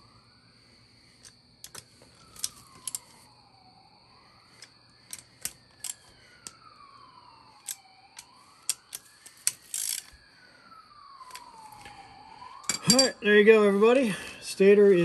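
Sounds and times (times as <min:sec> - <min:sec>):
distant siren wailing: 0:00.0 - 0:15.0.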